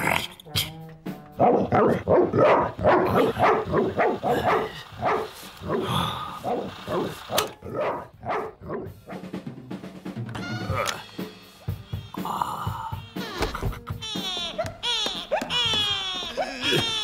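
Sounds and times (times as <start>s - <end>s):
dog barking: 1.4s - 5.8s, 6.4s - 9.2s.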